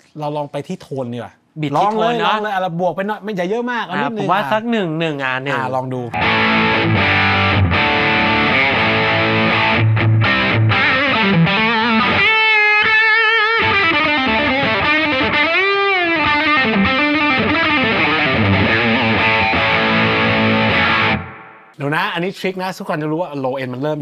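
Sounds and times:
electric guitar playing: 0:06.1 - 0:21.8.

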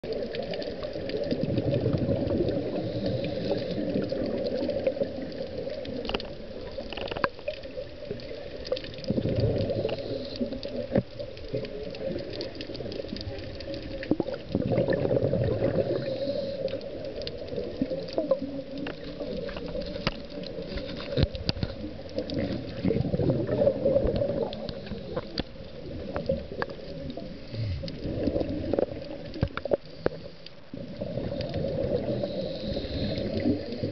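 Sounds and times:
underwater regulator bubbles: 0:00.0 - 0:33.9
small clicks: 0:03.3 - 0:14.5, 0:16.6 - 0:22.6, 0:24.0 - 0:30.6.

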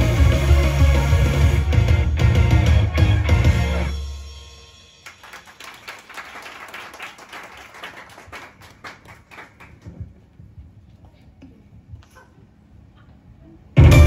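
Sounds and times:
audience clapping: 0:05.0 - 0:10.0.

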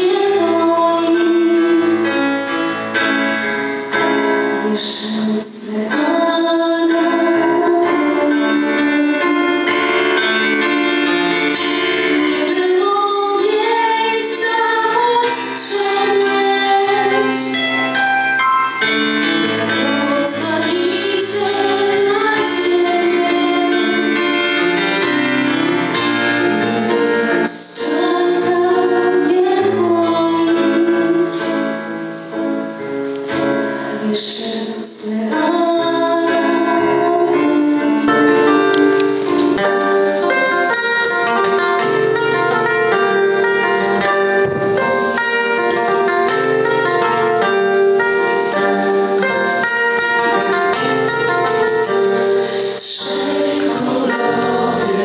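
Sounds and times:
women singing carol: 0:52.8 - 0:55.0.

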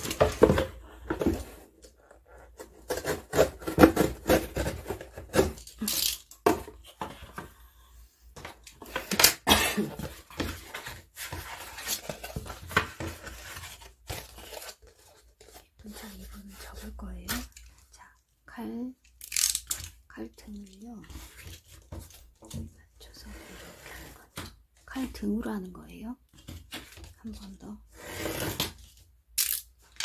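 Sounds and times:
paperboard box being torn apart: 0:02.7 - 0:06.0.

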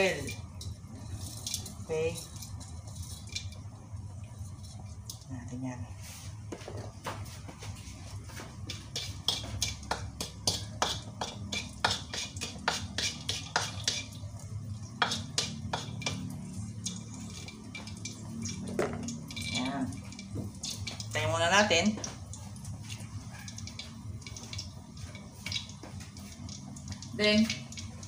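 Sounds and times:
spatula scraping a wok: 0:00.0 - 0:03.6, 0:07.9 - 0:21.0.

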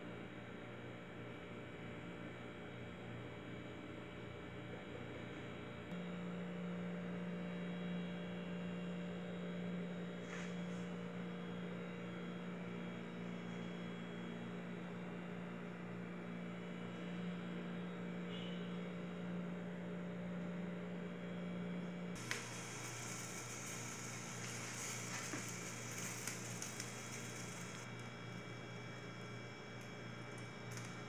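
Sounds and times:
low electrical hum: 0:16.0 - 0:31.0.

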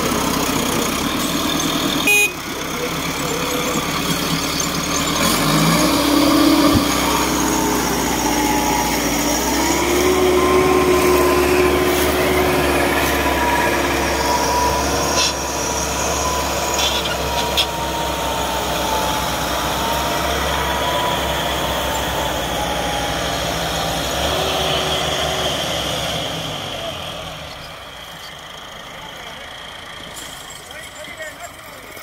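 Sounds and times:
diesel tractors under heavy load: 0:00.0 - 0:32.0
high squeal: 0:02.7 - 0:25.9.

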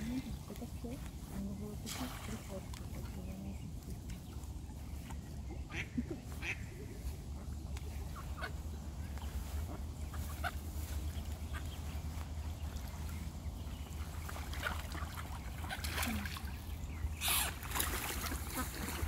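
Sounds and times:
steady low rumble: 0:00.0 - 0:14.6
ducks calling: 0:02.5 - 0:19.0.

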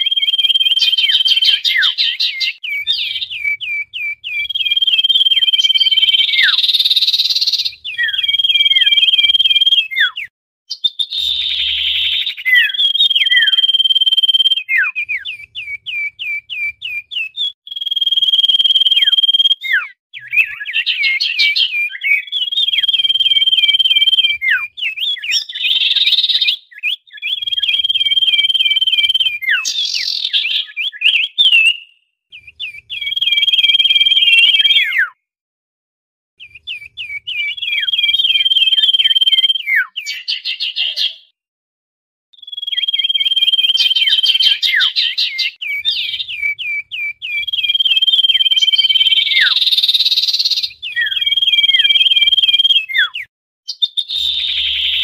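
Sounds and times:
bird harsh chatter: 0:00.0 - 0:09.0, 0:19.0 - 0:31.8, 0:42.5 - 0:55.0
bird whistling and chirping: 0:00.0 - 0:35.2, 0:36.4 - 0:41.3, 0:42.4 - 0:55.0.

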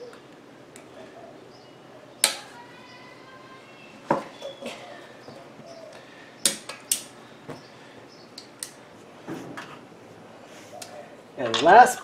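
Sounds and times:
metal tools clinking on wheel: 0:11.4 - 0:11.8.

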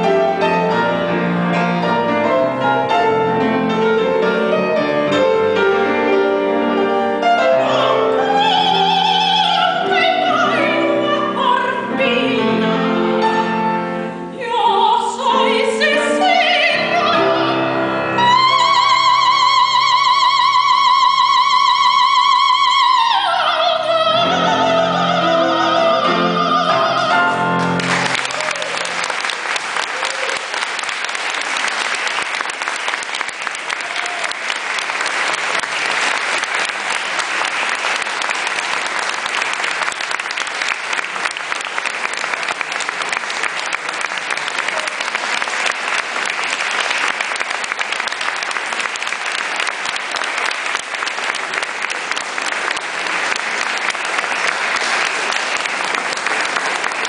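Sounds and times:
grand piano chords: 0:00.0 - 0:19.7, 0:23.9 - 0:28.3
woman singing opera: 0:07.4 - 0:13.1, 0:14.3 - 0:27.5
audience applause: 0:27.5 - 0:57.0.

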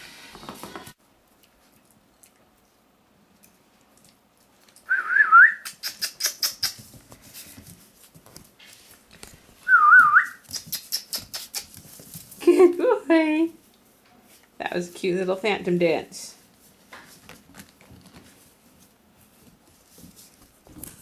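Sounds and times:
puppies clicking and scuffling: 0:05.6 - 0:09.5, 0:10.3 - 0:12.8, 0:16.5 - 0:21.0.

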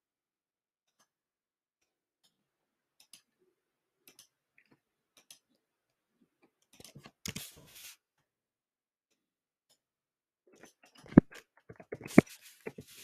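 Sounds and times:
rustling noise: 0:06.9 - 0:08.0, 0:10.9 - 0:13.0
computer mouse clicks: 0:10.6 - 0:13.0.

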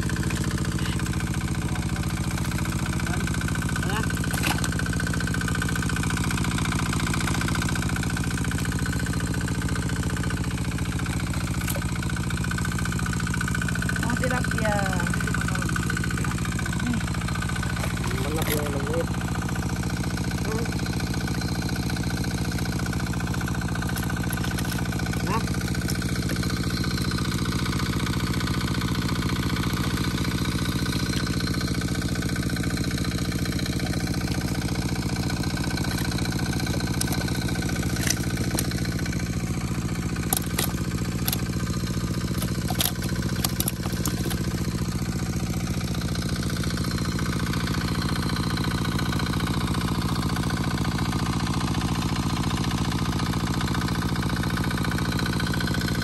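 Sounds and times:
small pump engine running: 0:00.0 - 0:56.0
sharp clicks: 0:40.2 - 0:44.6.

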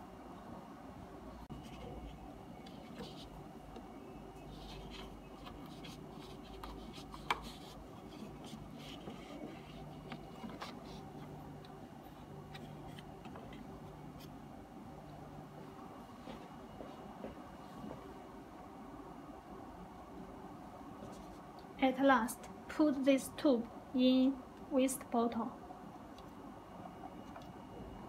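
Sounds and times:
low steady hum: 0:00.0 - 0:28.0
small handling clicks and scrapes: 0:01.5 - 0:14.4.

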